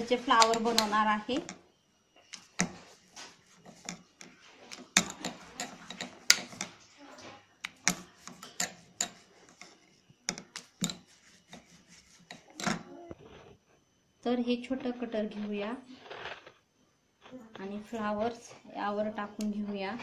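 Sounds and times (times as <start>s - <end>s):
soft rubbing: 2.3s - 13.8s.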